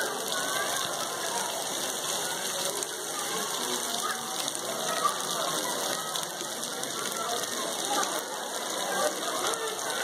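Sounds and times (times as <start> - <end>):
rain falling on stone paving: 0.0 - 10.0.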